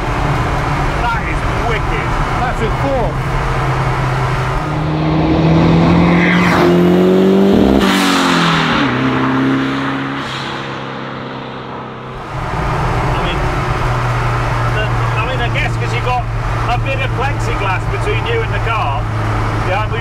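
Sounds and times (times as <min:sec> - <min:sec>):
car accelerating and passing by: 0:00.0 - 0:20.0.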